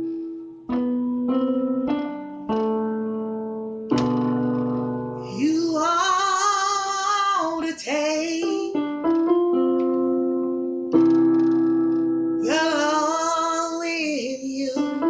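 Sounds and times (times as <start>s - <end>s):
electronic keyboard chords: 0.0s - 15.0s
woman singing gospel: 5.4s - 8.8s, 12.4s - 14.9s.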